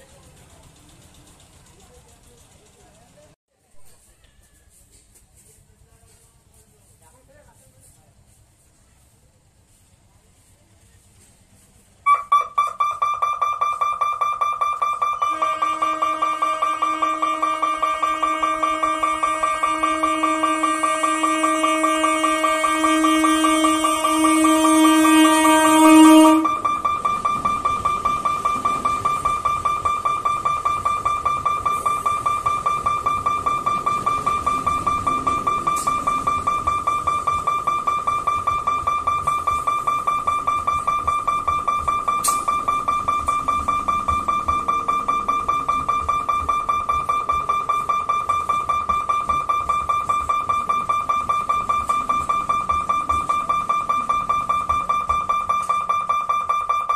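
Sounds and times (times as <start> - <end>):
level crossing alarm pulsing: 12.0 - 56.9
horn blast: 15.2 - 26.8.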